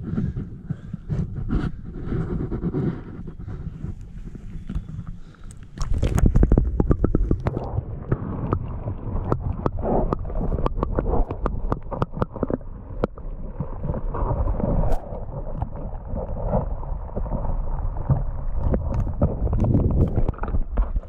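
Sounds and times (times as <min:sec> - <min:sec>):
gurgling water and bubbles: 0:00.0 - 0:21.0
low underwater rumble: 0:00.0 - 0:21.0
sharp underwater clicks and knocks: 0:00.2 - 0:13.2, 0:18.1 - 0:21.0
camera plunging into water: 0:04.5 - 0:13.2.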